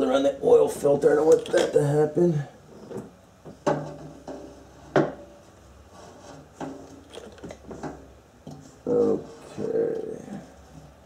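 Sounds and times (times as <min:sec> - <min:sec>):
metal pipe knocking and scraping: 0:02.8 - 0:05.4.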